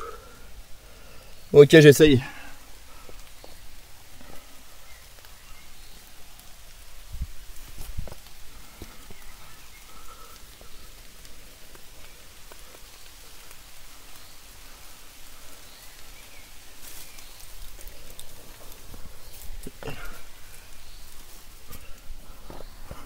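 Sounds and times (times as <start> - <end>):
rain pattering on leaves: 0.0 - 23.0.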